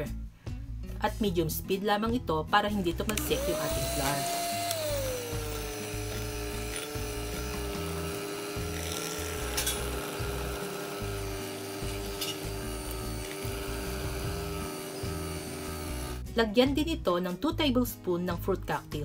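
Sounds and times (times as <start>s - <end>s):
electric hand mixer whining: 3.1s - 16.2s.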